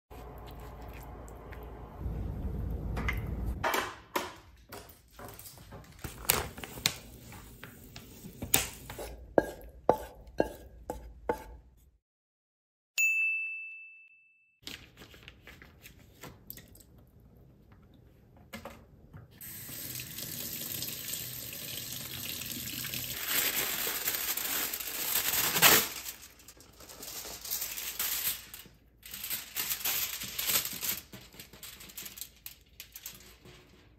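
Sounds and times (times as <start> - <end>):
bright ding: 13.0 - 14.6.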